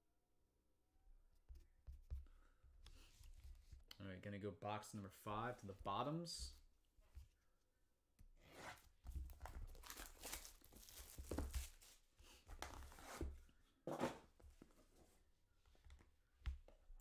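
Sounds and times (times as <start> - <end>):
plastic wrap tearing and crinkling: 9.5 - 11.8.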